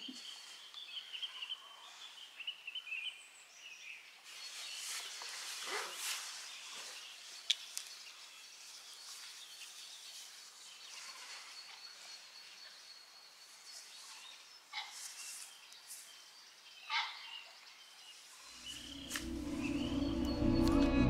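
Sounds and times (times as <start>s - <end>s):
small birds chirping: 0.0s - 20.6s
thin steady high tone: 18.5s - 21.0s
rushing noise: 18.6s - 21.0s.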